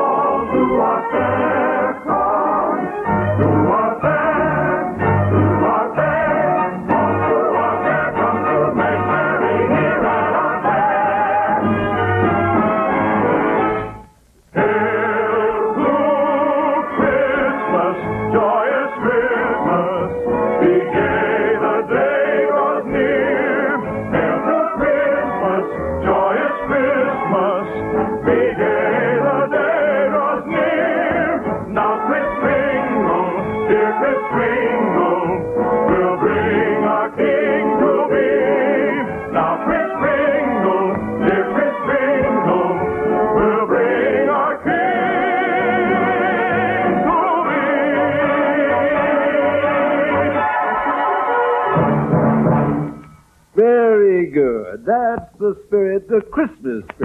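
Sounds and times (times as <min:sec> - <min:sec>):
people singing with vibrato: 0:00.0 - 0:52.1
orchestra playing: 0:50.3 - 0:53.0.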